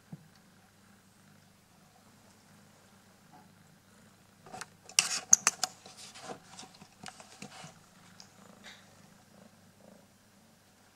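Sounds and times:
plastic clicking and crinkling: 4.5 - 8.8.

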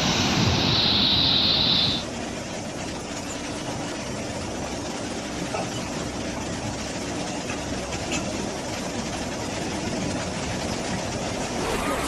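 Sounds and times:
heavy rain: 0.0 - 2.2
flood river rushing: 11.3 - 12.0.

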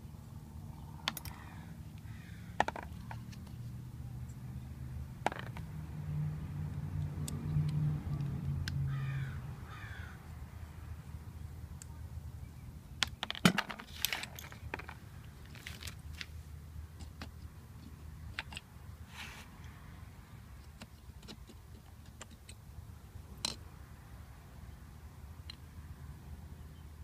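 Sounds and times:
small metal clicks and clinks: 1.1 - 1.4.

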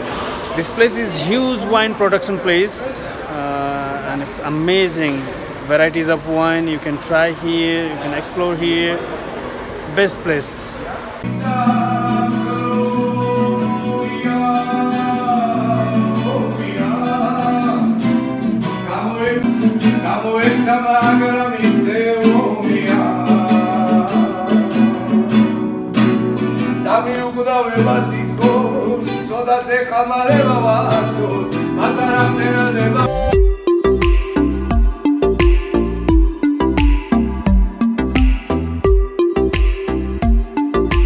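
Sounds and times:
acoustic guitar: 0.0 - 9.8, 11.2 - 41.0
person singing: 11.2 - 18.2, 19.0 - 25.3.

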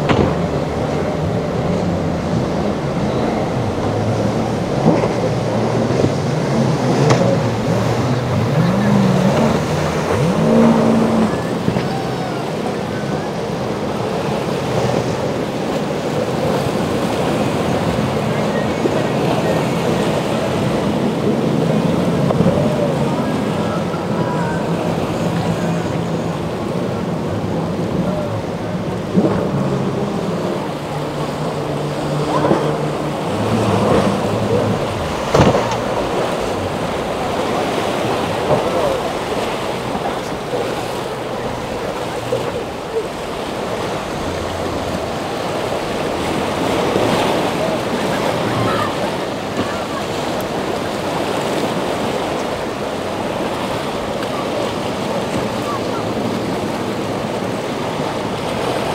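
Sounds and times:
boat engines droning: 0.0 - 58.9
waves washing: 0.0 - 58.9.

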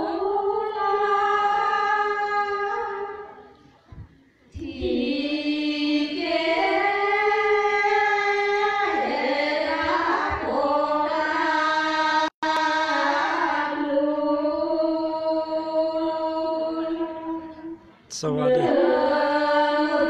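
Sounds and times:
women singing chant together: 0.0 - 3.5, 4.5 - 17.8, 18.4 - 20.0.

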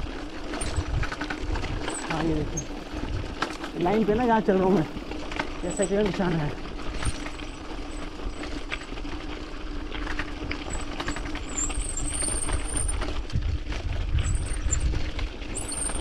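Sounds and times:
bike rattling: 0.0 - 16.0
wind rumbling on microphone: 0.0 - 16.0
tyres crunching over stones: 0.1 - 12.4
high squeaks: 10.7 - 13.0, 15.5 - 16.0.

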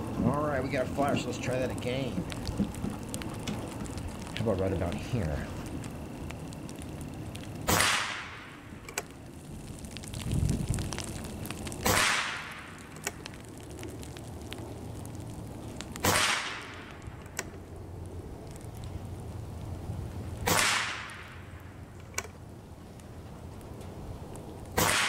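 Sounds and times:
air rifle shots: 7.6 - 8.5, 11.8 - 12.5, 16.0 - 16.8, 20.4 - 21.3, 24.8 - 25.0.

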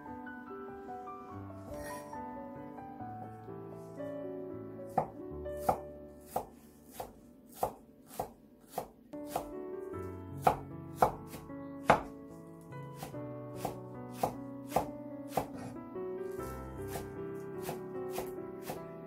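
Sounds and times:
background music: 0.0 - 19.0
cleaver chopping on wooden board: 5.0 - 9.5, 10.4 - 12.1, 13.0 - 15.7, 16.9 - 18.8.

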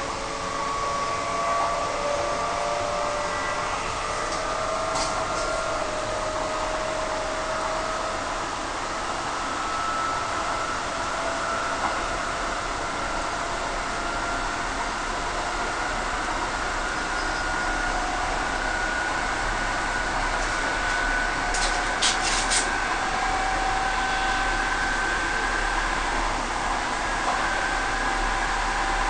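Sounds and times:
faint motor whine: 0.0 - 29.0
train carriage rumble and hiss: 0.0 - 29.0.

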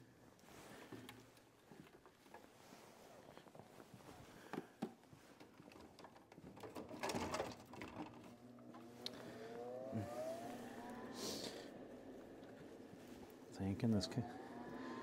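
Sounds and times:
knocks and rustles of tools: 3.4 - 8.9
motor humming and spinning up: 7.8 - 15.0.

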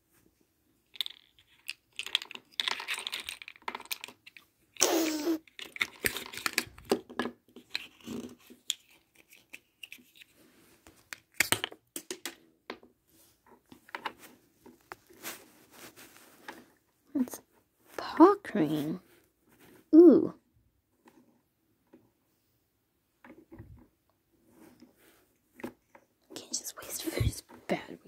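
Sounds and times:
plastic toys clattering on table: 0.9 - 4.5, 5.4 - 10.2, 11.1 - 12.8
rustling: 13.1 - 19.9.

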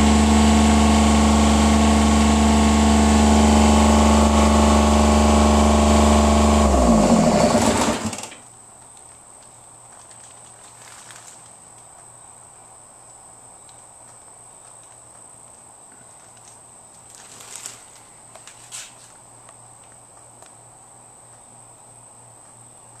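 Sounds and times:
high-pitched whine: 0.0 - 8.1
rustling or shuffling: 8.8 - 12.1, 14.1 - 20.0.

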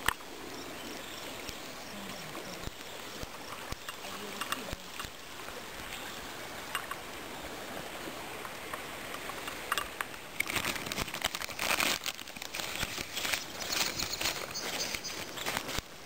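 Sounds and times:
river water rushing: 0.0 - 16.0
plastic bag crinkling: 10.4 - 15.8.

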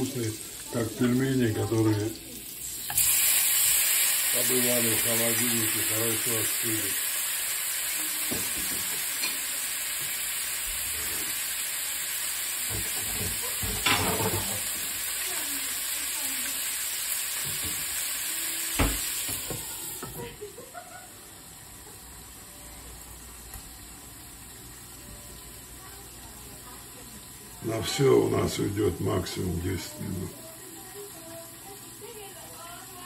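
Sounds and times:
dumplings sizzling in a frying pan: 0.0 - 33.0
clatter in a pan: 8.1 - 10.2, 12.6 - 15.6, 17.3 - 18.0.

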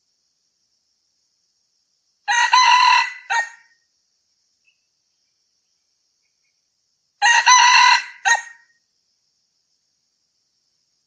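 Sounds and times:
rooster crowing: 2.3 - 3.7, 7.2 - 8.6.

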